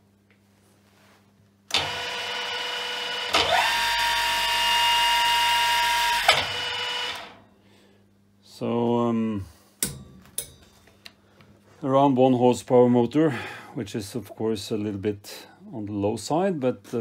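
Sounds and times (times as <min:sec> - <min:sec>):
mill-drill motor gear whine: 0:01.7 - 0:07.4.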